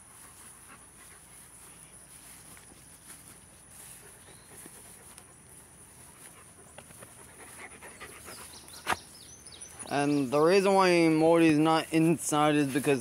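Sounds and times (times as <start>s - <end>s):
dog panting softly: 0.0s - 2.0s, 3.8s - 8.9s.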